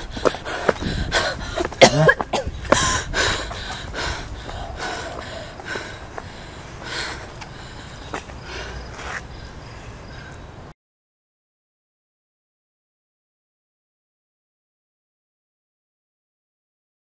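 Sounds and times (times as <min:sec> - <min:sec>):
woman coughing: 0:01.6 - 0:02.6.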